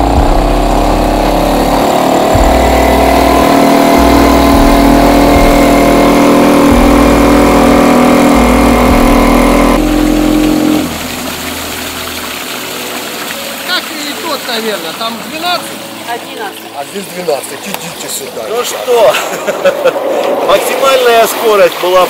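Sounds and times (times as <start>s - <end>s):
outboard motor running: 0.0s - 22.0s.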